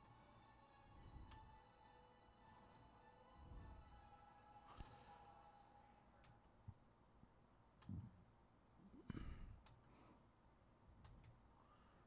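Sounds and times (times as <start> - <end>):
faint clicks: 6.2 - 11.8.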